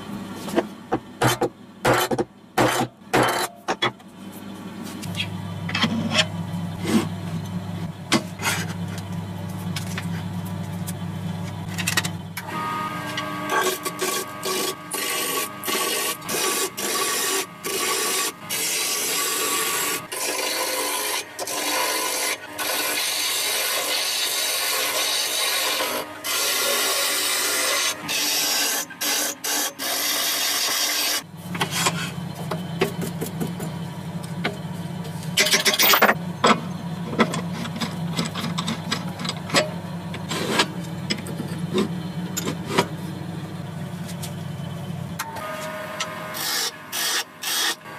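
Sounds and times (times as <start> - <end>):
machine hum: 0.0 - 47.9
metal blade rasping: 1.2 - 3.6, 13.4 - 32.2.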